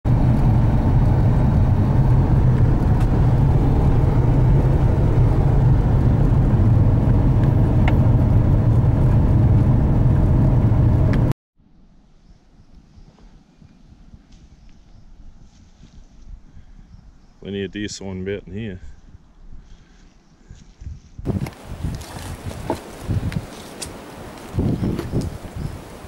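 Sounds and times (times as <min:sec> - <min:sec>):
car engine and road noise: 0:00.0 - 0:12.2, 0:21.2 - 0:26.0.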